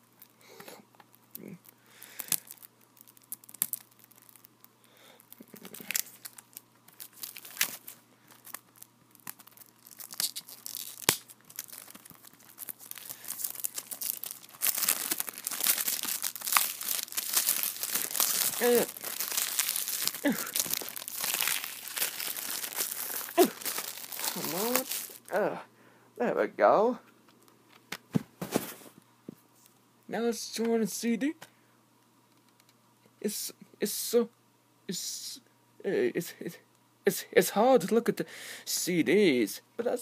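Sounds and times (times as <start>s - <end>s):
plastic shrink-wrap crinkling and tearing: 1.2s - 25.3s.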